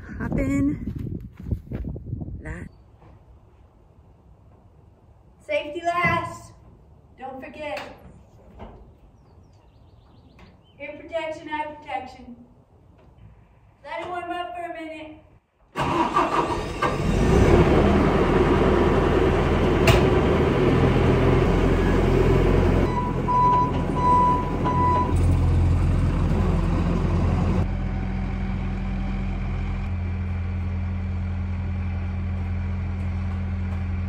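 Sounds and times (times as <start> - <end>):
diesel engine humming: 15.8 - 34.0
backup alarm beeping: 22.9 - 25.2.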